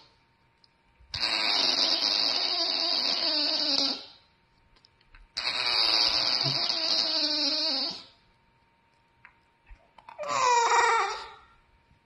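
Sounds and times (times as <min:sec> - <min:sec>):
bulldog moaning: 0:10.1 - 0:11.4.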